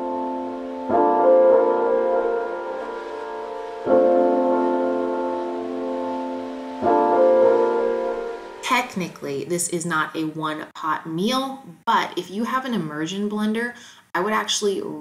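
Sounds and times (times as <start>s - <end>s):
piano chords: 0.0s - 9.4s.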